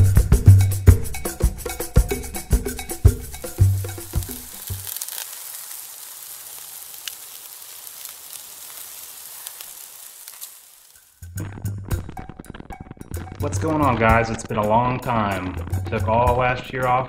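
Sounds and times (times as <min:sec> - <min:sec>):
percussive music: 0:00.0 - 0:05.0, 0:11.2 - 0:17.0
food sizzling: 0:01.2 - 0:14.6
small crackles: 0:03.3 - 0:13.2.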